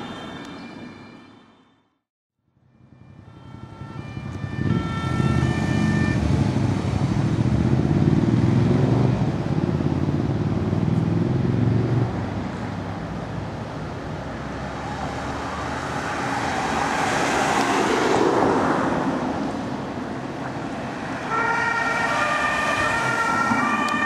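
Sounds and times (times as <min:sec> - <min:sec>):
road traffic rumble: 0:00.0 - 0:24.0
siren alternating tones: 0:02.7 - 0:06.4, 0:21.3 - 0:24.0.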